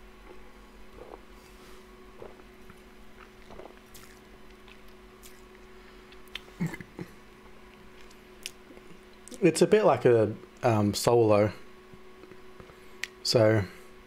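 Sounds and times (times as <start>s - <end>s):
person swallowing: 0.9s - 1.3s, 2.2s - 4.2s
lip smacks: 8.0s - 9.4s.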